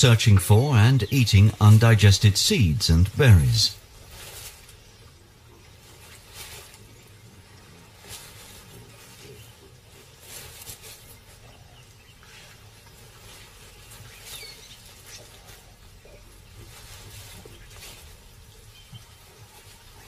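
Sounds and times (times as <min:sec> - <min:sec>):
rustling and scraping: 0:03.8 - 0:20.0.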